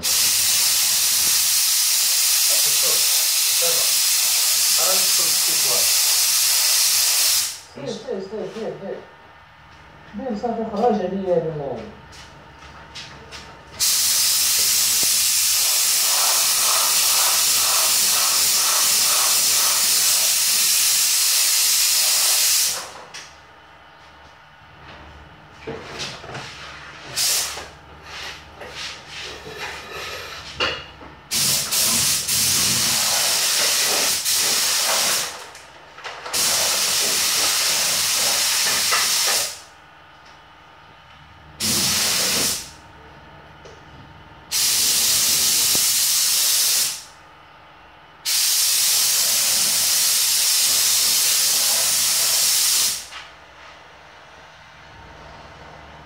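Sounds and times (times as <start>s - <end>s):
spray gun hissing: 0.0s - 7.7s, 13.8s - 22.8s, 27.2s - 27.6s, 31.3s - 35.4s, 36.4s - 39.6s, 41.6s - 42.7s, 44.5s - 47.1s, 48.2s - 53.1s.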